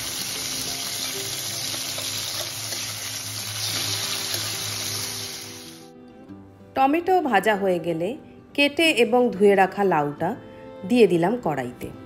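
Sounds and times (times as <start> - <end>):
food sizzling in hot oil: 0.0 - 5.9.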